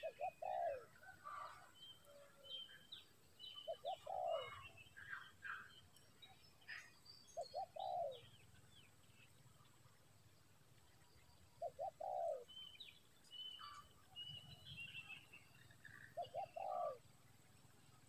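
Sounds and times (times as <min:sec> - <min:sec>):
dove cooing: 0:00.0 - 0:02.2, 0:03.6 - 0:05.7, 0:07.4 - 0:08.3, 0:11.6 - 0:12.6, 0:16.0 - 0:17.0
small birds chirping: 0:00.0 - 0:18.0.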